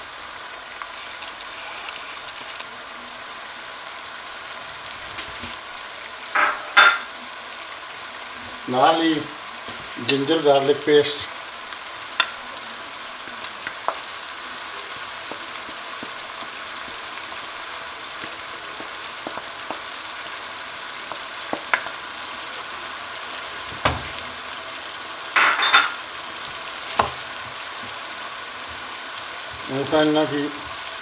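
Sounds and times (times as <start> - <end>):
onions sizzling in oil: 0.0 - 31.0
wooden spoon knocking a pan: 18.2 - 19.9, 23.7 - 24.2, 27.0 - 28.0.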